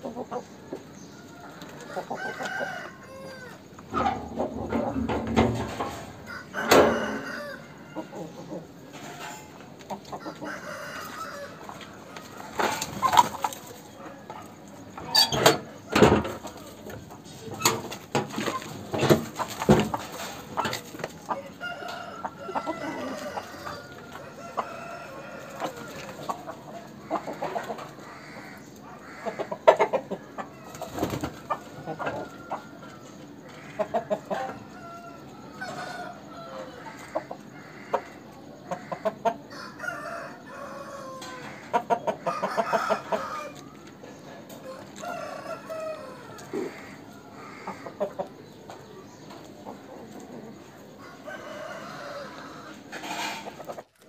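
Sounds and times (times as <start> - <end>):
chickens clucking: 0.0 - 54.0
rooster crowing: 1.2 - 4.1, 6.1 - 8.4, 10.2 - 12.8, 21.4 - 26.3, 34.4 - 38.0, 38.8 - 43.8, 44.6 - 47.8, 51.0 - 52.9.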